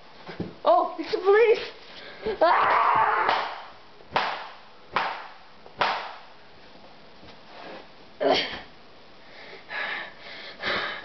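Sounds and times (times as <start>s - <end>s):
sharp cracks: 2.7s - 6.4s.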